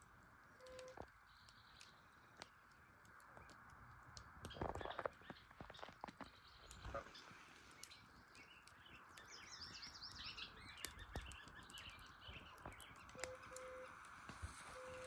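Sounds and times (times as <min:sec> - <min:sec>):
wood fire crackling: 0:00.0 - 0:15.0.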